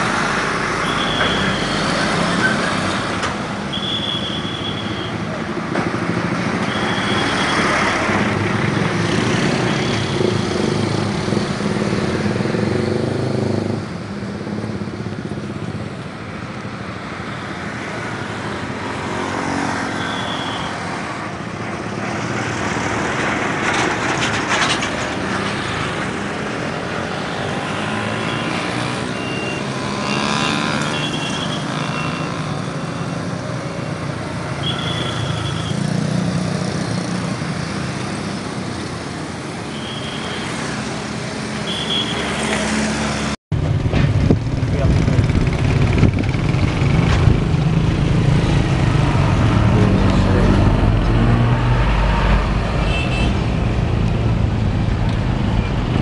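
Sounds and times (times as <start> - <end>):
buses and trucks passing: 0.0 - 56.0
motorcycles passing: 7.2 - 23.8, 25.2 - 56.0.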